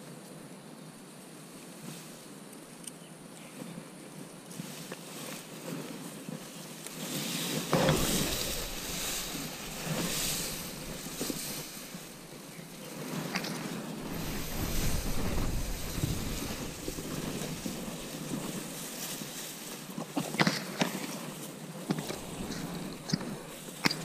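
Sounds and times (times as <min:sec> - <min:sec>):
outdoor hiss: 0:00.0 - 0:24.0
wind buffeting microphone: 0:07.3 - 0:19.9, 0:21.8 - 0:24.0.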